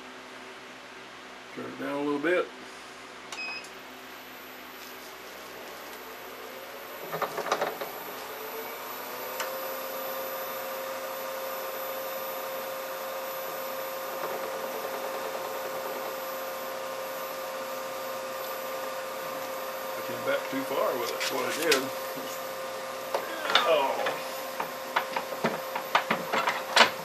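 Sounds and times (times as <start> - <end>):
wood lathe whining: 6.0 - 27.0
rattling clatter: 25.0 - 27.0.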